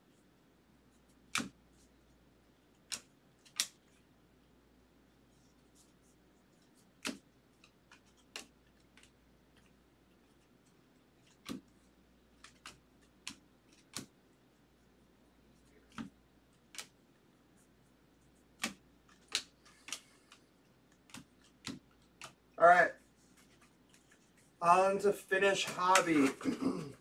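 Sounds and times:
trading cards clicking: 2.8 - 3.8, 7.0 - 9.7, 12.4 - 14.1, 18.6 - 22.4, 25.6 - 26.4.

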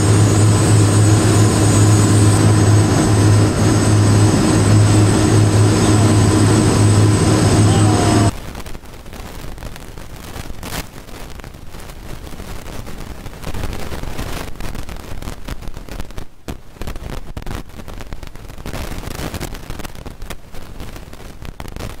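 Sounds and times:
wind buffeting microphone: 0.0 - 8.3.

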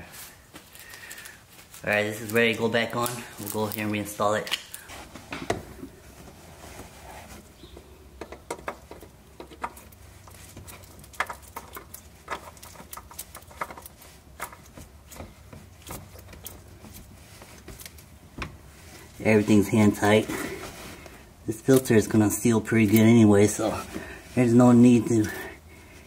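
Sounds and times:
oil filter clicking and rubbing: 5.6 - 22.1.

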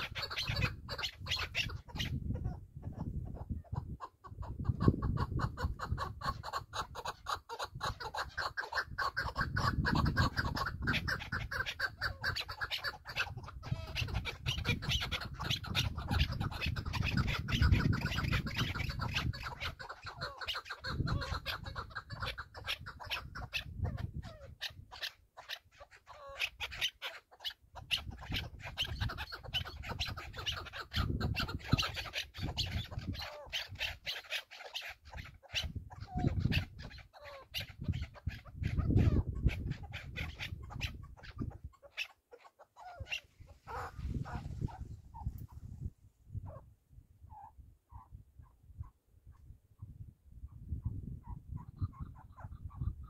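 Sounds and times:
wind rumble on microphone: 0.0 - 25.0, 27.7 - 34.1, 35.1 - 41.8, 42.9 - 53.0.

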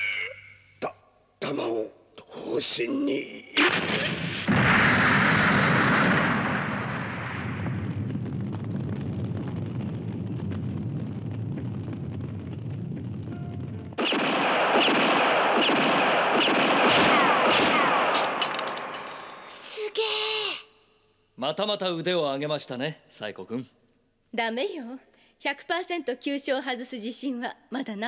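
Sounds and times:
explosion with low rumble: 3.6 - 19.3.

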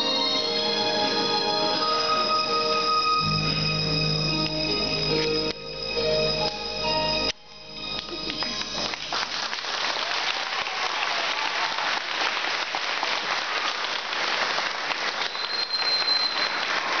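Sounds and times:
high steady whistle: 0.0 - 9.0, 15.1 - 17.0
audience applauding: 7.2 - 17.0.

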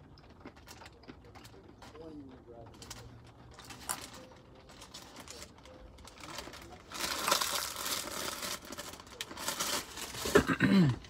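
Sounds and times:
crunching of nuts being chewed: 0.0 - 11.0
plastic bag crinkling: 2.7 - 10.6.

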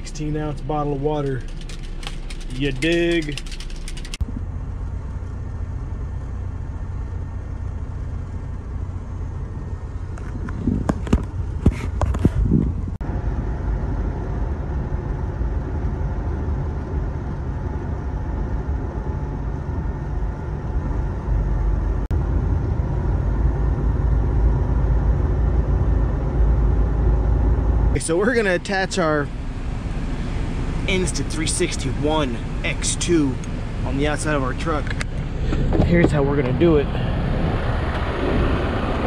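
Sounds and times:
truck engine and road rumble: 0.0 - 39.0
sharp knocks and rattles: 1.2 - 4.3.

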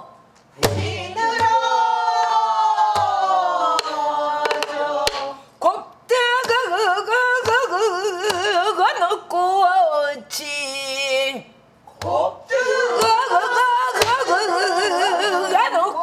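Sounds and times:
woman singing with vibrato: 0.8 - 11.4, 12.1 - 16.0.

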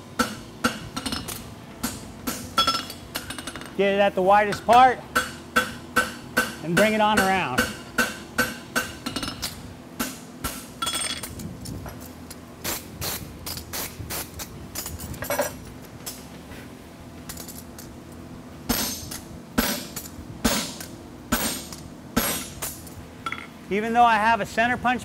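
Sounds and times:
hammer striking steel on anvil: 0.2 - 3.7, 4.5 - 11.0, 18.7 - 22.6.

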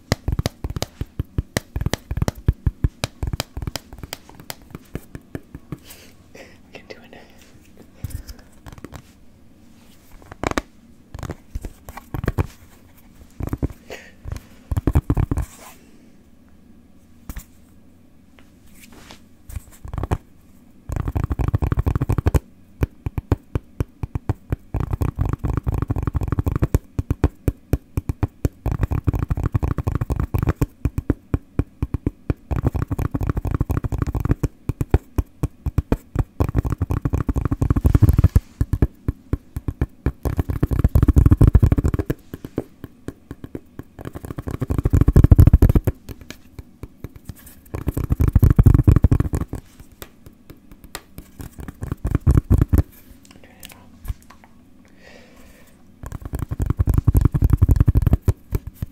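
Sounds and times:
fingers tapping: 0.0 - 5.9, 8.6 - 9.0, 10.3 - 12.6, 13.4 - 15.5, 19.8 - 20.2, 20.9 - 52.9, 56.0 - 58.9.

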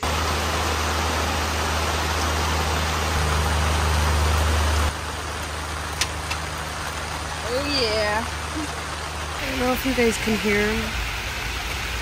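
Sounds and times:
heavy rain pouring: 0.0 - 12.0.

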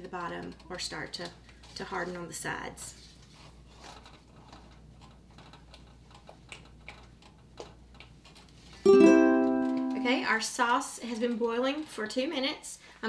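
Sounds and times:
plucked ukulele chord: 8.9 - 10.3.

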